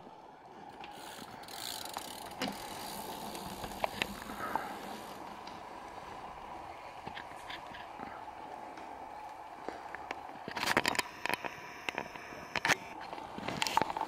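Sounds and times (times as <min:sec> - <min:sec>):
bicycle chain clicking and rattling: 0:00.6 - 0:07.8.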